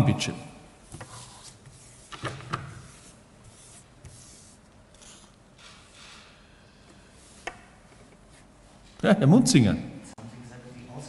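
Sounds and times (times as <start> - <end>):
faint rustling and handling noise: 6.8 - 9.1.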